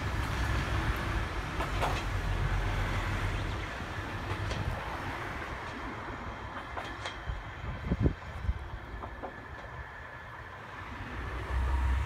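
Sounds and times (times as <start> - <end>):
railcar engine and wheel rumble: 0.0 - 12.0
wheels clicking over rail joints: 0.0 - 12.0.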